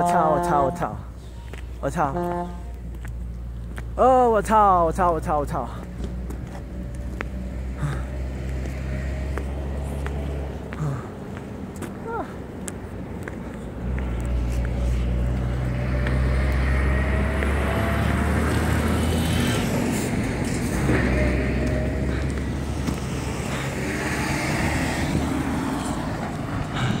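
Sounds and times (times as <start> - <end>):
vehicle engine running: 4.6 - 27.0.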